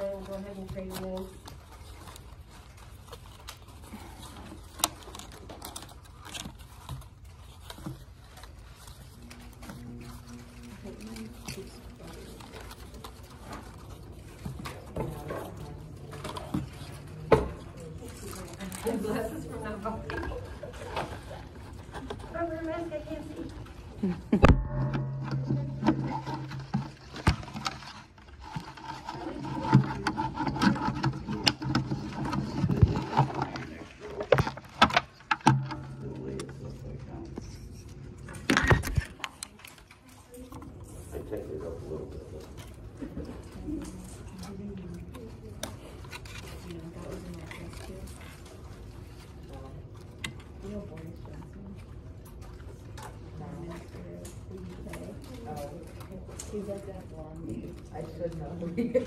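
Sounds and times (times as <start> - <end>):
low steady hum: 0.0 - 59.0
wooden splints scraping and clicking: 24.5 - 40.1.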